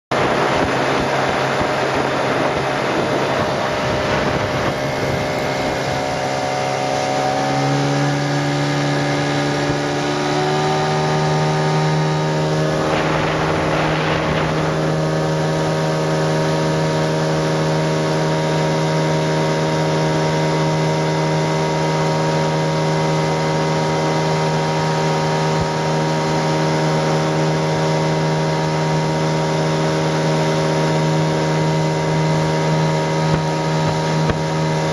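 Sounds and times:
outboard motor running: 0.1 - 34.9
brief rushing noise: 12.7 - 15.4.

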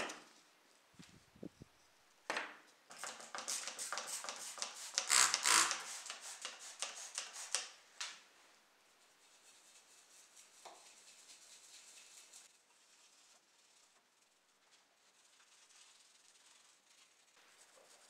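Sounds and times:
brush scrubbing: 3.1 - 7.8, 9.0 - 18.0.

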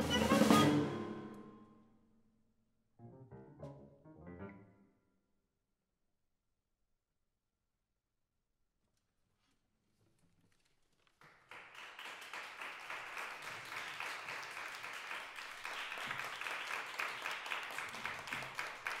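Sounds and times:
audience applause: 11.2 - 19.0.

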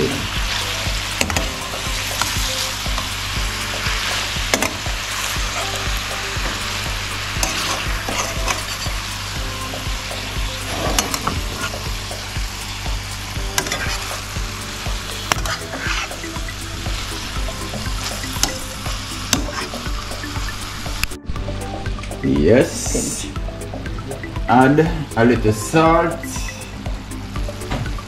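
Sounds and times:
food sizzling in a frying pan: 0.0 - 21.1
spatula scraping a pan: 15.3 - 16.2.

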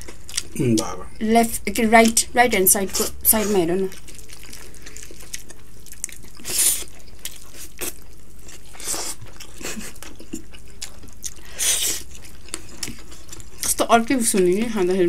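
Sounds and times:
chewing with wet mouth clicks: 0.0 - 0.8, 3.9 - 14.6.

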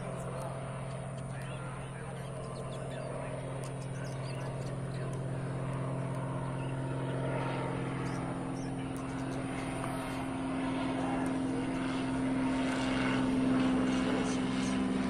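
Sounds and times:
propeller plane droning overhead: 0.0 - 15.0.

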